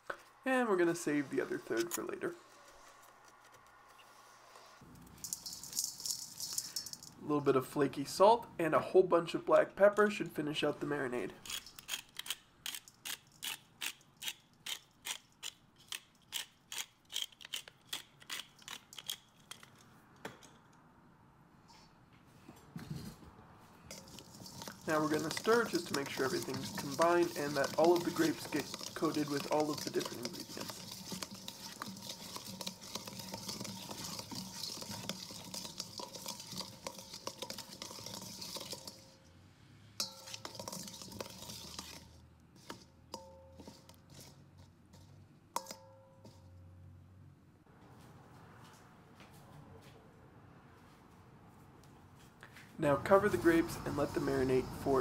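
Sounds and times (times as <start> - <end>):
pepper mill grinding: 4.9 - 7.2, 11.4 - 19.8, 23.9 - 39.2, 40.0 - 42.8
grapes stirred in metal bowl: 5.1 - 7.3, 11.5 - 12.0, 23.9 - 39.3, 40.0 - 45.8.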